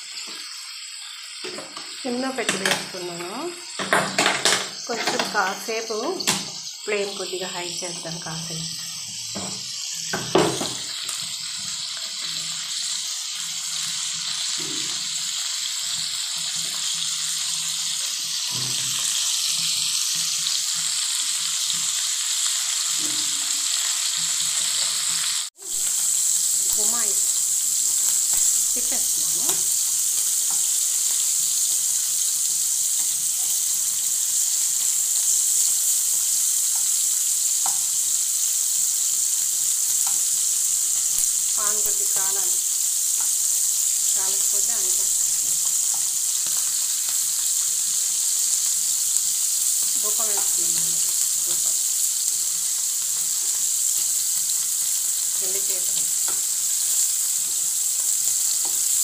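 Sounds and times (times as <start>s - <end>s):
fish sizzling in hot oil: 0.0s - 59.0s.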